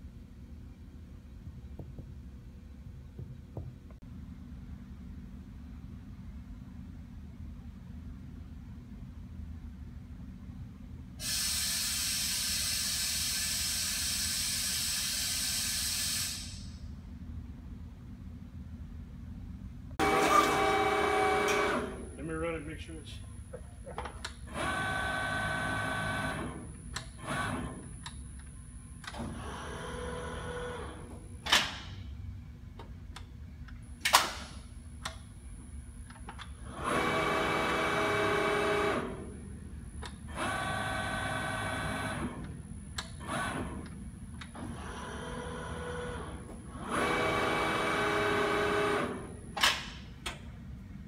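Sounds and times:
low steady hum: 0.0 - 11.2, 21.5 - 24.5
hydraulic machine drives whining: 20.0 - 22.1.

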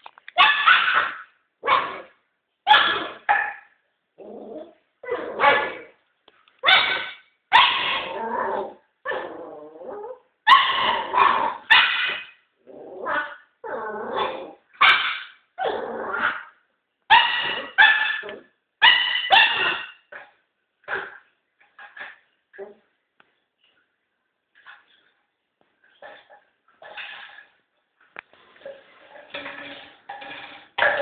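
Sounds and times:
puppy barking: 0.4 - 3.7, 6.6 - 8.1, 10.5 - 12.4, 14.8 - 16.5, 17.1 - 20.0
puppy growling: 4.2 - 5.9, 7.8 - 10.2, 12.6 - 14.6, 15.6 - 16.5.

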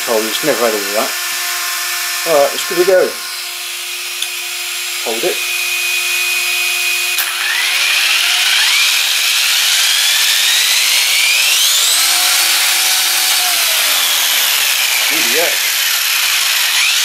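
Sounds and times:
electric motor whine: 0.0 - 17.0
fan hum: 0.0 - 17.0
gears and spinning wheels rushing: 7.2 - 17.0.

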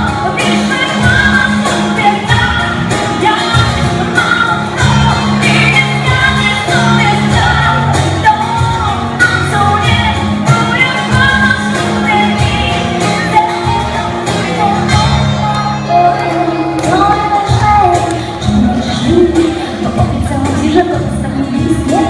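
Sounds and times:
strummed acoustic guitars: 0.0 - 22.0
woman singing: 0.0 - 22.0.

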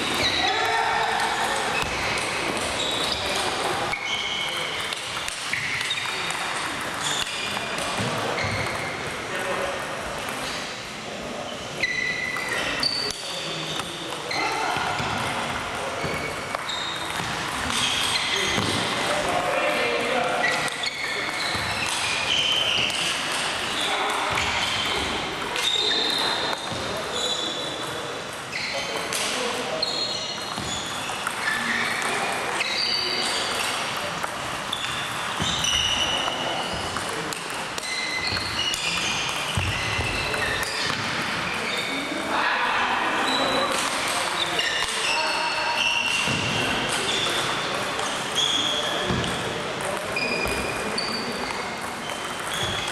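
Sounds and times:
murmur of voices: 0.0 - 52.9
table tennis balls clicking: 1.1 - 9.2, 30.4 - 32.6, 49.0 - 52.9.

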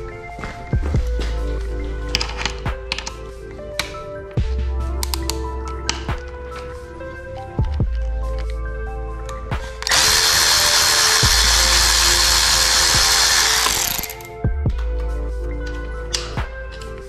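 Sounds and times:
cordless electric ratchet whine: 9.8 - 14.3.

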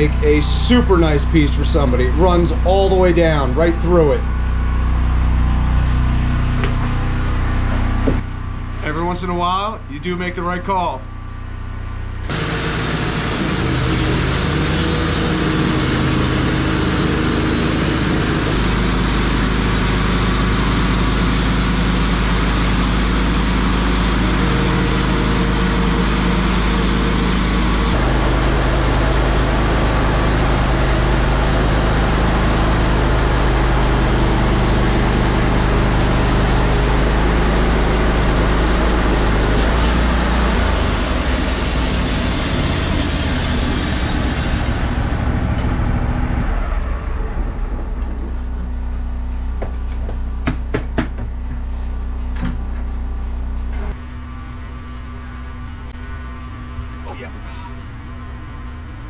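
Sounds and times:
bandsaw mill sawing log: 12.3 - 45.7.

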